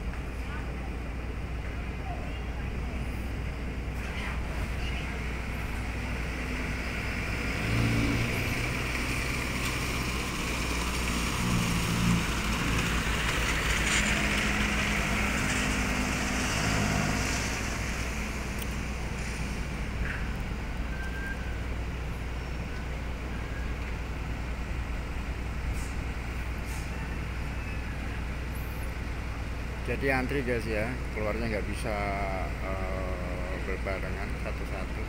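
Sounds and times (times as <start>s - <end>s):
truck engine driving past: 3.0s - 21.6s.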